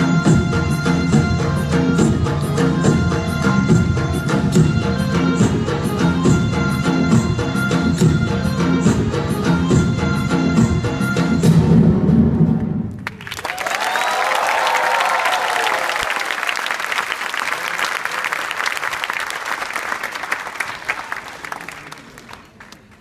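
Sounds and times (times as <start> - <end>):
audience applause: 13.0 - 23.0.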